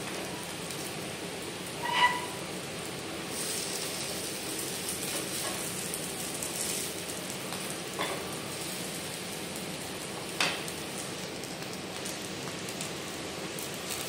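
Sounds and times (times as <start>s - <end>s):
oil sizzling in a pan: 0.0s - 14.0s.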